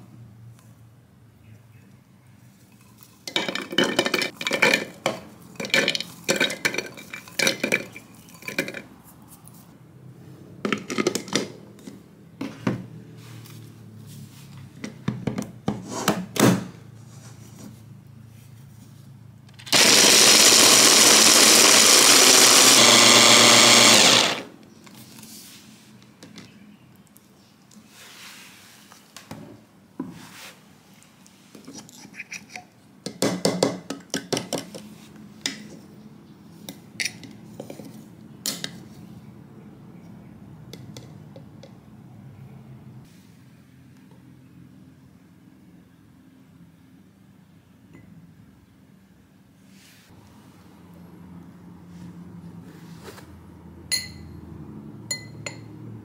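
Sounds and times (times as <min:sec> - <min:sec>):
mini chopper grinding walnuts: 0:19.6 - 0:24.5.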